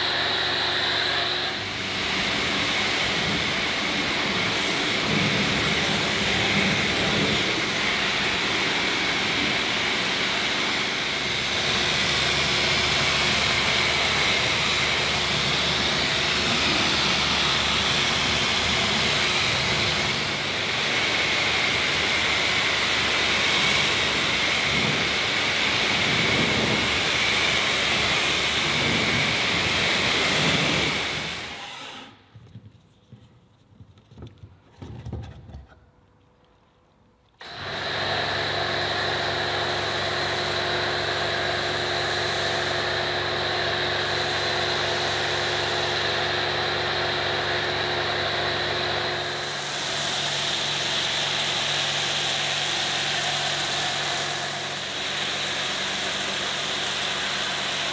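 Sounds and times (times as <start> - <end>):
pressure washer spraying water: 0.0 - 32.0, 37.4 - 57.9.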